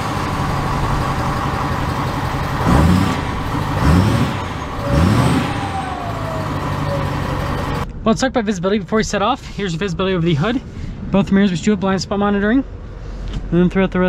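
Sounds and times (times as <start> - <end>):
truck engine idling and revving: 0.0 - 8.0.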